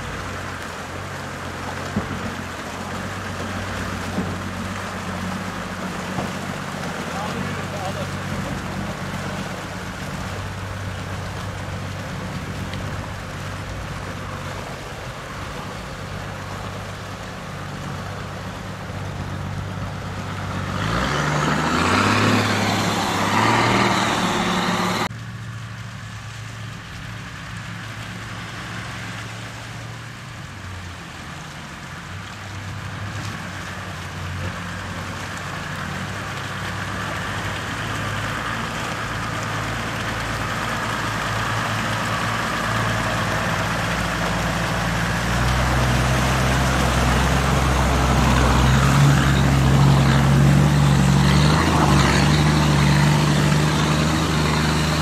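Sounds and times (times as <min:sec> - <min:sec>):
diesel engine running: 0:00.0 - 0:55.0
loud rushing noise: 0:20.6 - 0:25.1.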